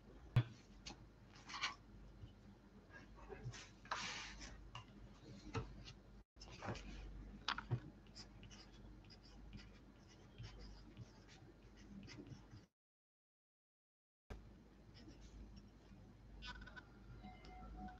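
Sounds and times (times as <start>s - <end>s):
pencil writing on paper: 8.0s - 12.7s.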